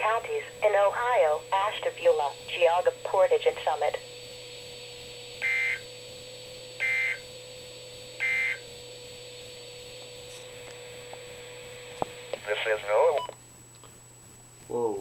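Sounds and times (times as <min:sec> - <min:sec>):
radio receiver hum and hiss: 0:00.0 - 0:05.9, 0:09.4 - 0:14.0
warbling data tone bursts: 0:05.4 - 0:05.9, 0:06.8 - 0:07.3, 0:08.2 - 0:08.7.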